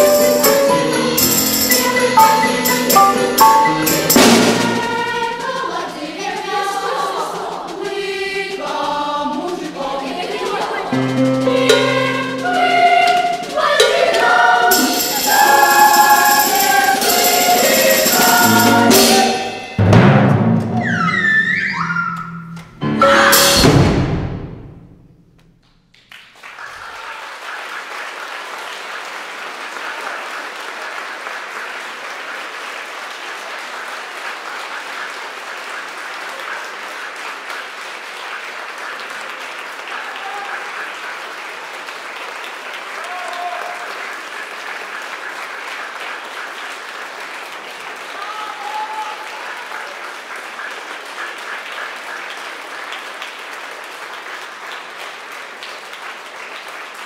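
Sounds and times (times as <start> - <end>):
audience applauding: 25.9 - 57.0.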